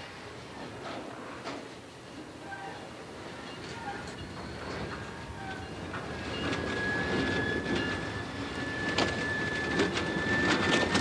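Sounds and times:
train wheels squealing: 2.4 - 11.0.

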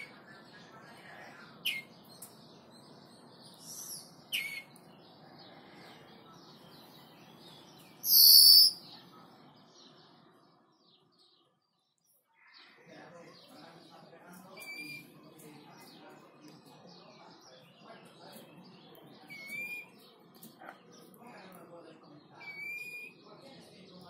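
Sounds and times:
soft bird twittering: 0.0 - 24.0
finch chirping: 1.6 - 4.8, 6.6 - 8.9
loud long high bird call: 8.0 - 8.8.

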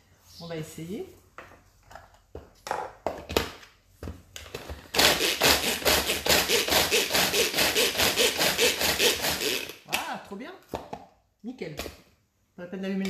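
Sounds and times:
rhythmic whirring of food chopper: 5.0 - 9.8.

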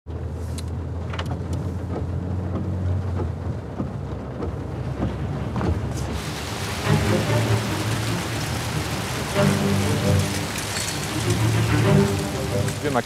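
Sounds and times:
car rumble from inside cabin: 0.1 - 6.8
rain on car: 0.1 - 13.0
ticks of raindrops: 0.5 - 13.0.

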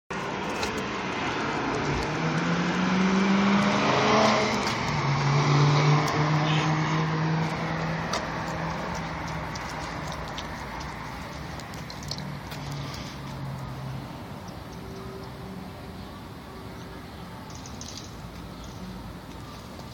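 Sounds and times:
car engine passing by: 0.3 - 11.0.

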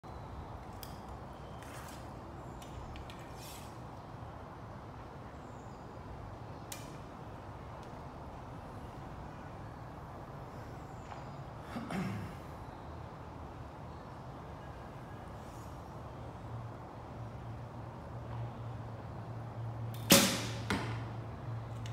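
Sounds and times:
bow and arrow clicks and rustles: 0.6 - 3.8.

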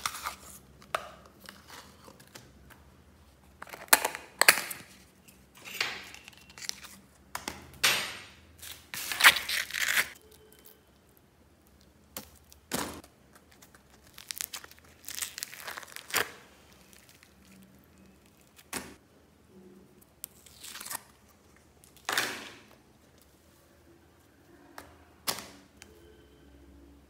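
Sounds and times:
slime tearing and squelching: 9.0 - 10.7, 13.4 - 18.7, 20.2 - 22.1
plastic tubs crinkling: 12.1 - 18.8.

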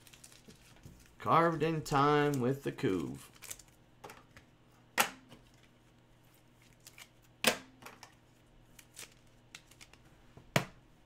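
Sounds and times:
cards being flipped through: 5.3 - 7.3, 7.9 - 10.0.

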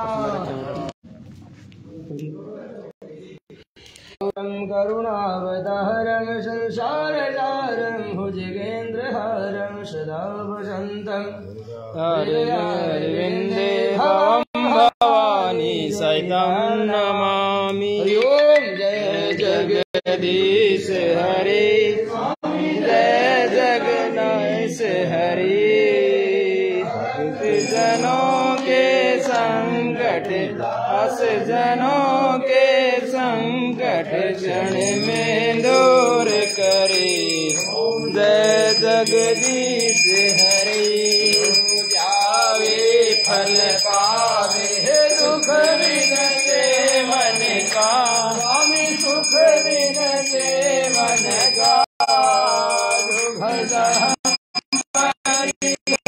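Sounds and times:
small bell ringing: 27.5 - 29.0, 34.7 - 56.0.

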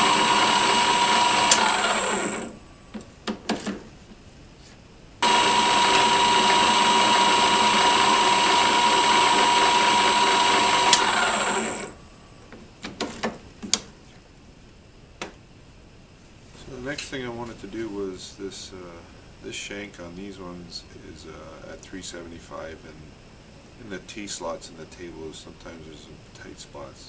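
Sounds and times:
metal lathe whining: 0.0 - 2.6, 5.2 - 12.1
sharp clicks and knocks: 10.6 - 11.6.

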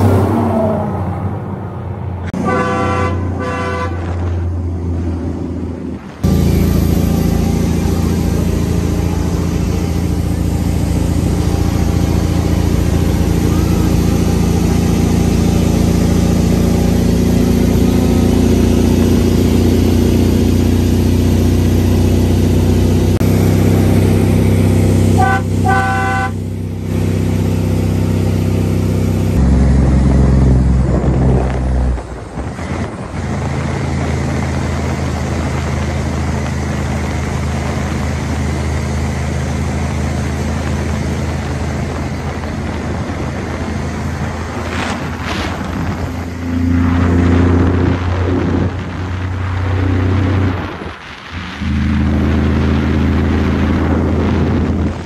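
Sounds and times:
truck engine running: 0.0 - 55.0
truck horn toots: 2.4 - 4.4, 25.0 - 26.5.

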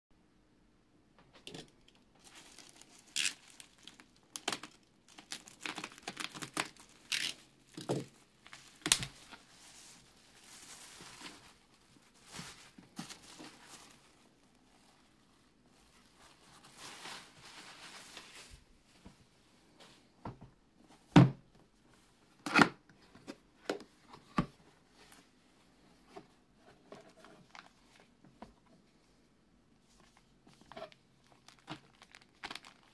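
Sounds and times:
plastic crinkling and crackling: 1.4 - 18.7, 26.9 - 28.2, 29.9 - 32.9
tape tearing off bubble wrap: 2.3 - 8.0, 8.6 - 9.3.

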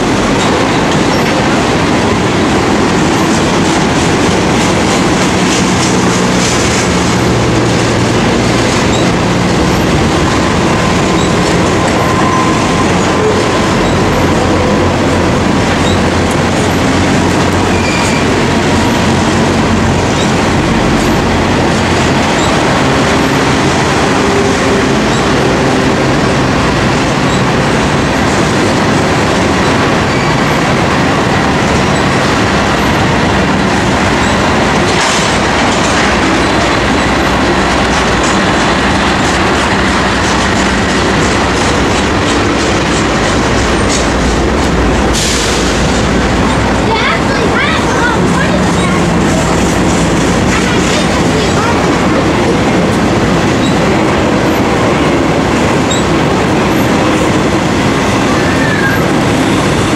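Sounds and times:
train wheels rumbling on rails: 0.0 - 59.9
wheel squeals: 8.8 - 9.9, 10.8 - 16.9, 17.6 - 19.2, 27.2 - 27.5, 53.6 - 54.6, 55.8 - 56.1, 58.3 - 59.1.

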